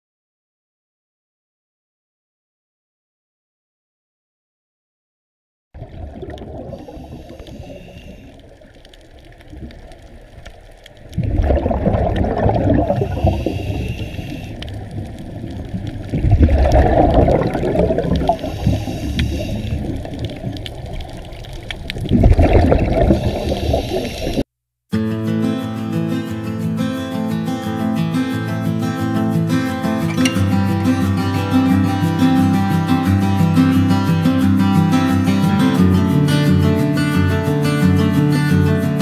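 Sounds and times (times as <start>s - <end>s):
exhaled bubbles rushing underwater: 5.8s - 24.4s
regulator hiss: 6.8s - 8.6s, 13.0s - 14.9s, 18.3s - 20.4s, 23.0s - 24.4s.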